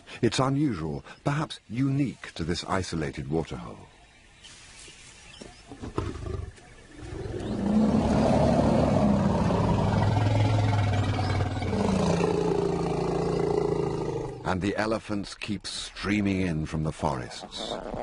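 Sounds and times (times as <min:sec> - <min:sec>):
large animal deep call: 0:05.9 - 0:14.5.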